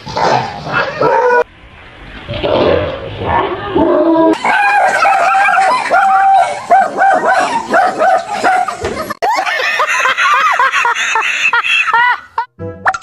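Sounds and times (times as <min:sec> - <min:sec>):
dog barking rapidly: 0:04.4 - 0:08.8.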